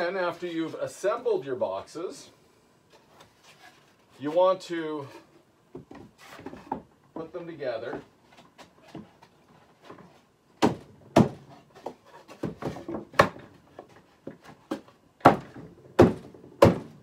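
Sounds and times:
wooden box sides knocking: 10.6 - 17.0.

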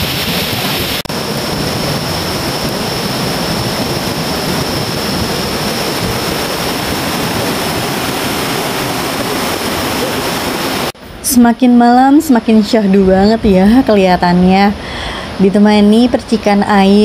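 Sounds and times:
river and waterfall rushing: 0.0 - 11.0.

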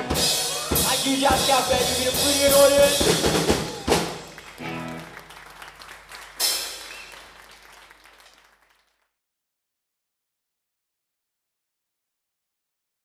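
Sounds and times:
band's last note: 0.0 - 5.1
audience applauding: 0.4 - 9.1.

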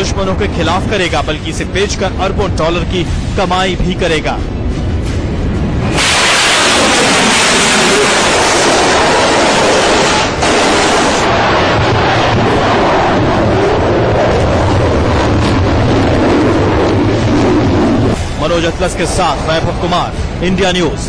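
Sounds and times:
rocket motor exhaust roar: 4.4 - 20.4.

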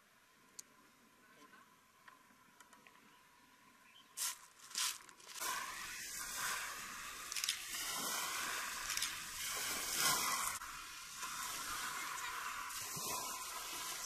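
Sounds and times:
sea hiss on pebble beach: 4.2 - 14.0.

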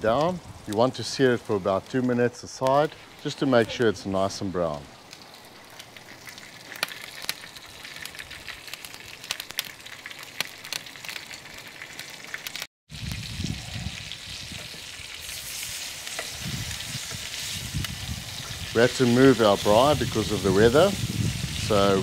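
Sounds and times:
meat sizzling in oil: 2.6 - 22.0.

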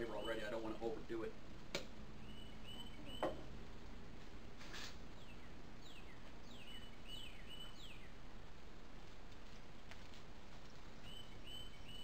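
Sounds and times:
songbird whistling: 0.0 - 0.7, 2.2 - 3.5, 5.2 - 8.2, 11.0 - 12.0
low background hiss: 0.0 - 12.0
brief rustle: 4.6 - 5.0.

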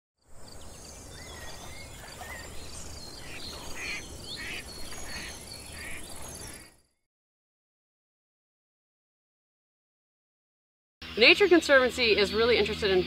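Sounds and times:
birds chirping: 0.2 - 7.0, 11.0 - 13.0
pulsing insect chorus: 0.3 - 6.8, 11.0 - 13.0.

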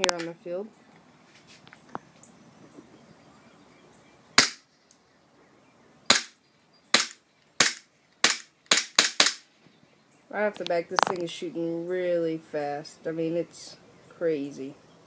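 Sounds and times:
airsoft pistol shots: 4.4 - 4.6, 6.1 - 9.4.

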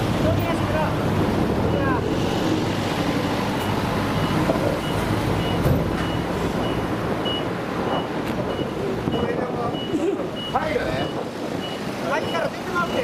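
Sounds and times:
low rumble of engines: 0.0 - 13.0
reversing alarm beeps: 3.6 - 13.0.

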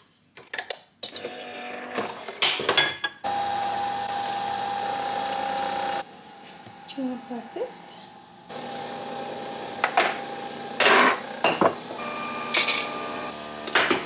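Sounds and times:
small electric motor humming: 3.3 - 6.1, 6.7 - 14.0.

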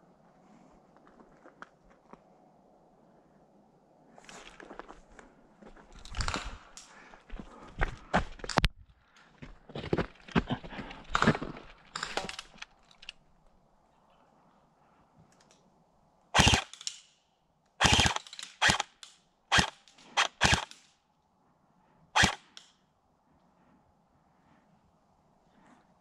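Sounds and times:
airsoft gun shots: 16.4 - 16.8, 17.8 - 18.9, 19.5 - 20.7.

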